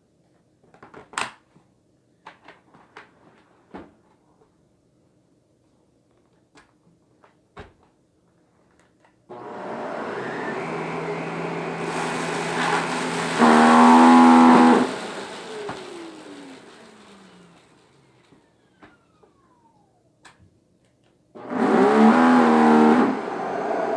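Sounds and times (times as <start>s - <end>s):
vacuum cleaner running: 9.3s - 20.0s, 21.4s - 23.9s
vacuum motor winding down: 9.3s - 20.0s, 21.4s - 23.9s.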